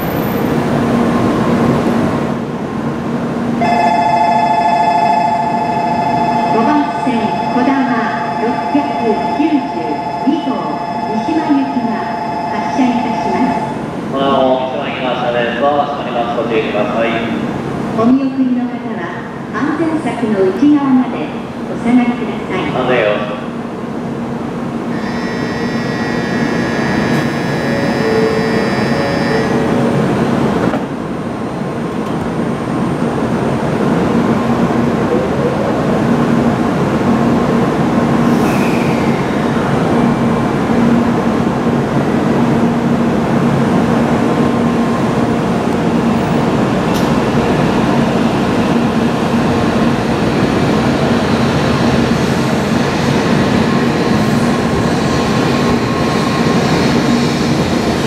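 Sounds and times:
train pulling out: 24.9 - 31.0, 38.0 - 41.5, 44.2 - 58.0
high electronic tones: 25.0 - 29.8.

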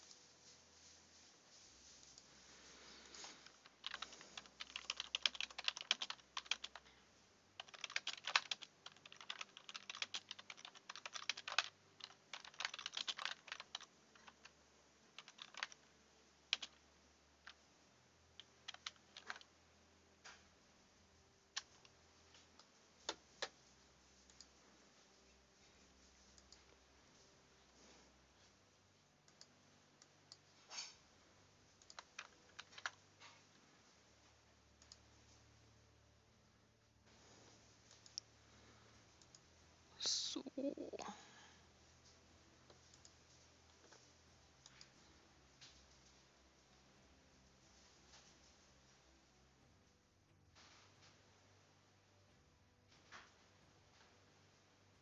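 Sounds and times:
keyboard keys clicking: 3.6 - 6.8, 7.6 - 14.5, 15.2 - 15.9, 16.5 - 16.8, 18.4 - 19.5, 31.8 - 33.0.

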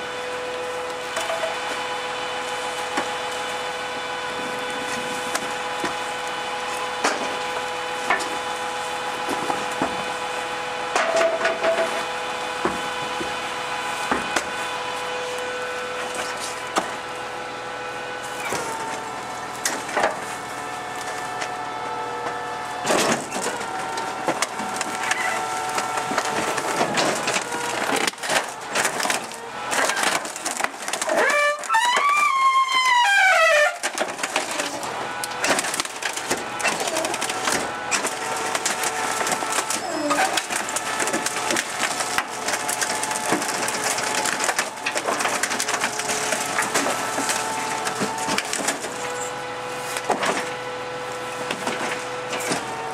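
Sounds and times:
garbage truck compactor whine: 0.0 - 52.9
wooden frame cracking: 22.8 - 50.6.

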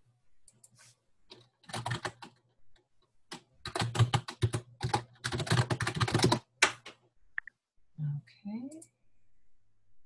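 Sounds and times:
keyboard typing: 0.4 - 7.6.

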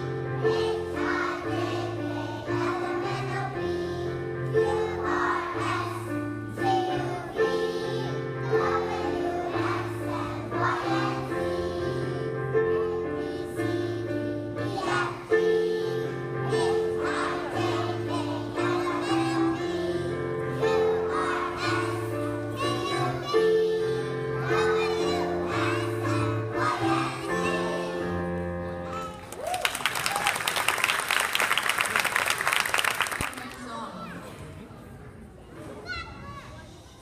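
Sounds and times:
children's choir singing: 0.0 - 29.2.

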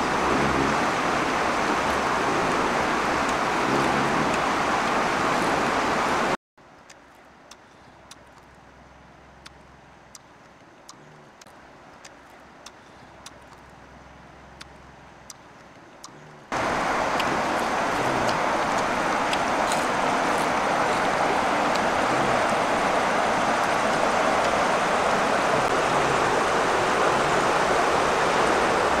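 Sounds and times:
river running over stones: 0.0 - 10.8, 16.5 - 29.0
faint clicks: 6.7 - 22.6.

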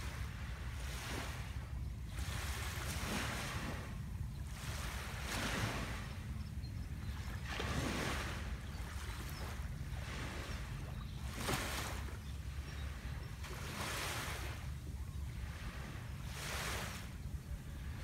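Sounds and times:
small waves lapping on sand: 0.0 - 18.0.

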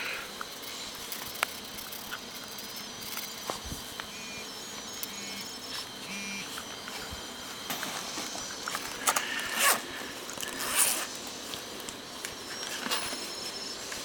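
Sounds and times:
zipper pulled open: 9.4 - 9.8.

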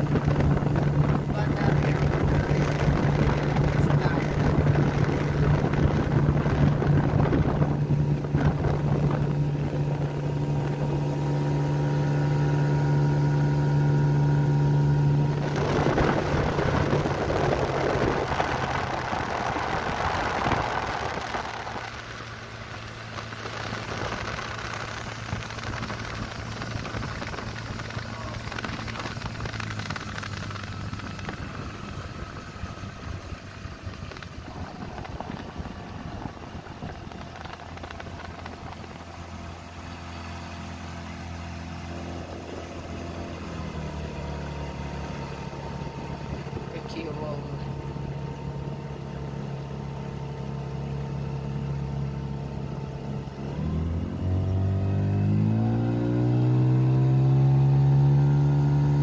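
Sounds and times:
wind rushing: 0.0 - 13.4, 15.1 - 39.4
water rushing: 0.0 - 49.0
outboard motor running: 0.0 - 59.0.

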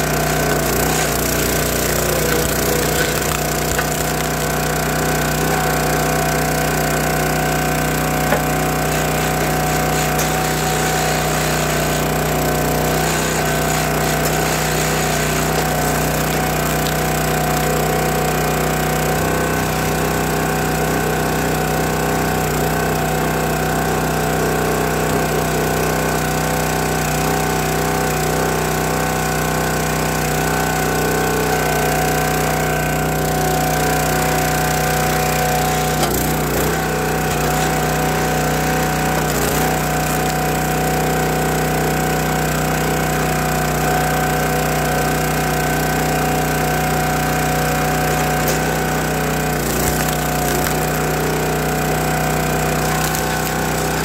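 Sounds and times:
wood splitting cracks: 0.0 - 18.2, 34.4 - 41.3, 48.1 - 54.0
small gas engine running: 0.0 - 54.0.

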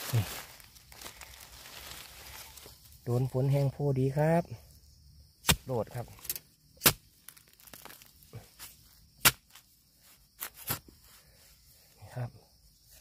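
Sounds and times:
soft crackling: 0.0 - 3.2
sharp crunching cracks: 5.4 - 9.7.

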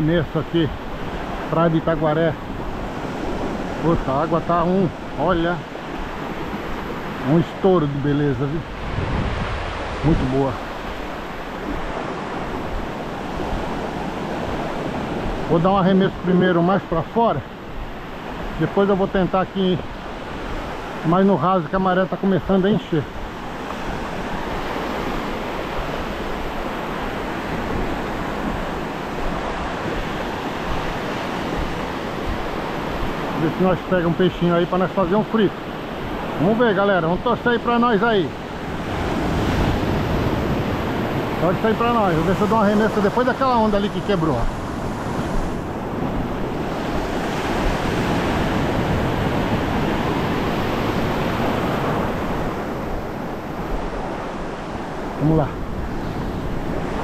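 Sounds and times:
wind on microphone: 0.0 - 15.6, 23.0 - 33.6, 38.2 - 57.0
ocean surf breaking: 0.0 - 57.0.

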